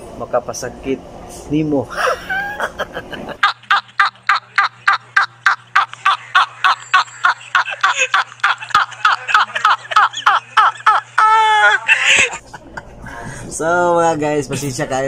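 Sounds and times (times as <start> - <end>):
man laughing in high-pitched squeals: 1.9 - 12.6.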